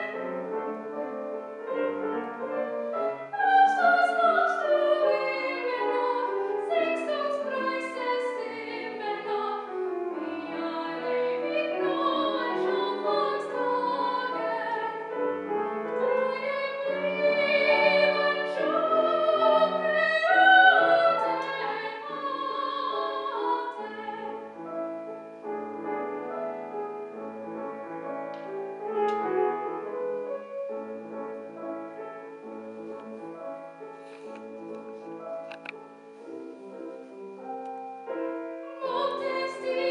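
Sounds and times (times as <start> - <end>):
grand piano accompaniment: 0.0 - 39.9
soprano singing with vibrato: 2.9 - 24.7, 38.4 - 39.9.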